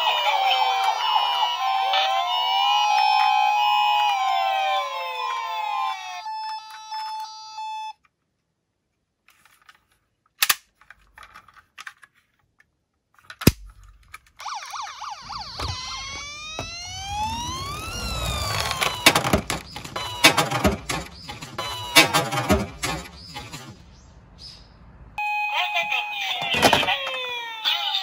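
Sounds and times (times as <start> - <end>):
toy ambulance electronic siren: 0.0 - 8.0, 14.4 - 23.7, 25.2 - 28.0
sharp clicks handling toy: 9.3 - 14.8
electronic tones: 14.4 - 23.4.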